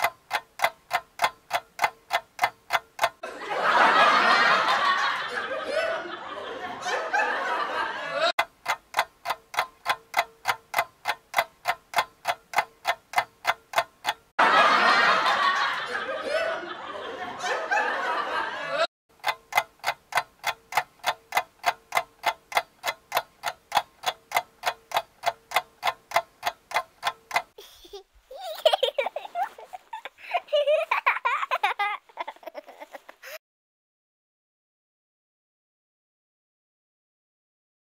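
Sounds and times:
ticking clock: 0.0s - 5.3s, 8.4s - 15.9s, 19.1s - 27.6s
burst of laughter: 3.2s - 8.3s, 14.4s - 18.9s.

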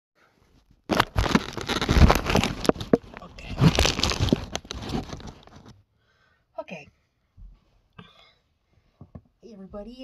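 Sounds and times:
phone handling rustling and scraping: 0.8s - 5.8s.

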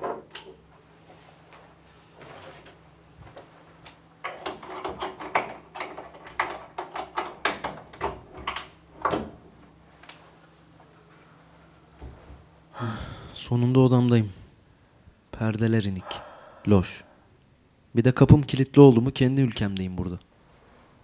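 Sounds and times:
door lock clicking and rattling: 4.2s - 9.3s.

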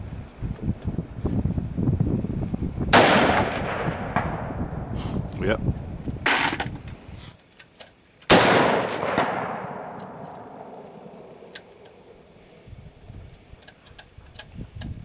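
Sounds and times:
rifle shot: 2.9s - 4.7s, 8.3s - 12.1s.

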